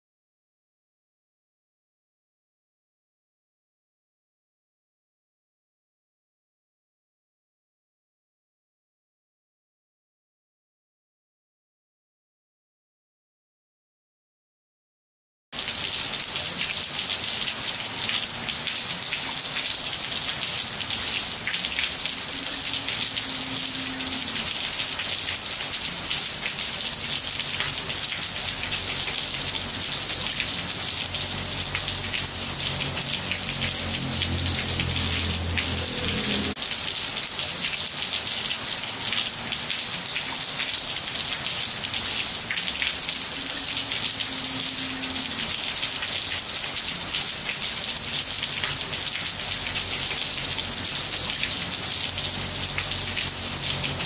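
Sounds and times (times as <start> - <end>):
rain on roof tiles: 15.6 - 54.0.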